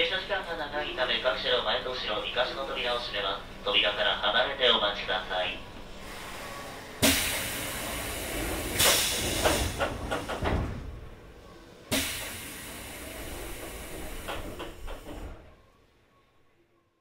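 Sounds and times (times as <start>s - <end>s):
pneumatic door air hiss: 6.0s - 11.0s, 11.9s - 15.5s.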